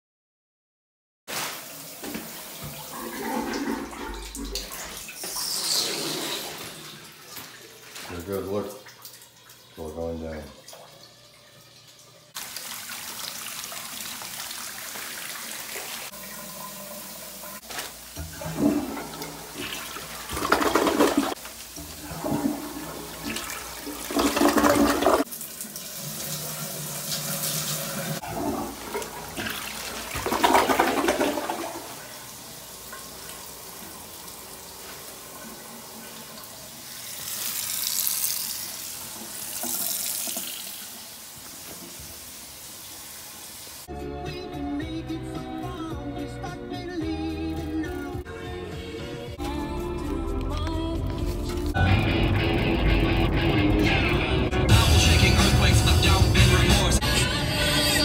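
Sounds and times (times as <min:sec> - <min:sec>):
toilet flushing: 0:01.3 - 0:43.9
water draining through drain: 0:01.9 - 0:43.2.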